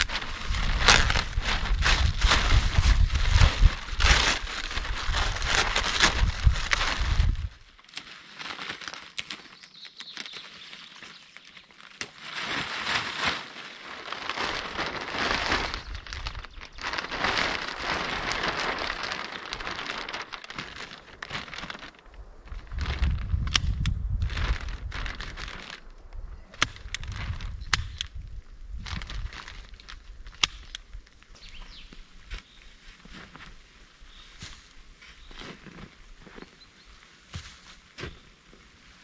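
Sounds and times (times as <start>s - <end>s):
plastic sheets crinkling: 0.0s - 23.5s, 24.2s - 27.6s, 28.8s - 31.2s
low rumbling: 14.7s - 27.7s.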